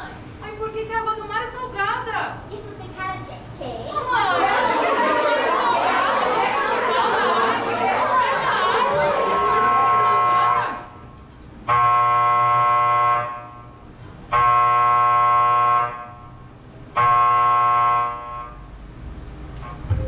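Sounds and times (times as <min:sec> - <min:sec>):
buzzer-like tone: 0:11.7 - 0:13.6, 0:14.4 - 0:16.3, 0:17.0 - 0:18.7.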